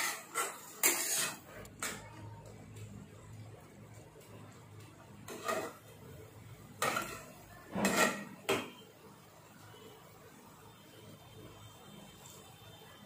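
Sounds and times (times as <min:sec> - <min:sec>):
metal spatula scraping a pan: 0:00.0 - 0:02.0, 0:05.2 - 0:06.0, 0:06.7 - 0:08.8.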